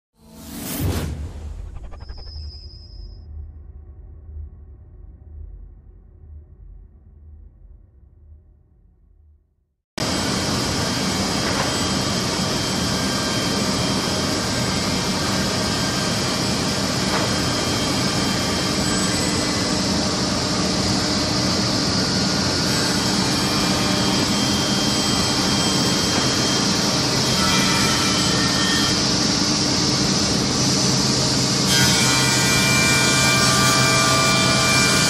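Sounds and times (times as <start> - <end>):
cnc machine running: 10.0 - 35.0.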